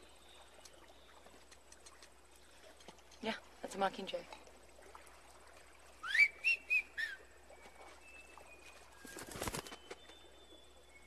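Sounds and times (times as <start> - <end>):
person whistling a tune: 6.0 - 7.2
faint bird whistles: 6.0 - 11.0
bird wings flapping: 8.6 - 10.2.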